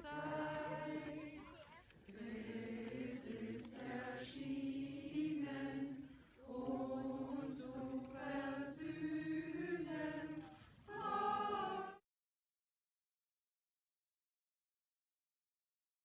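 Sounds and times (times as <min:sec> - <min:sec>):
group singing slow song: 0:00.0 - 0:12.0.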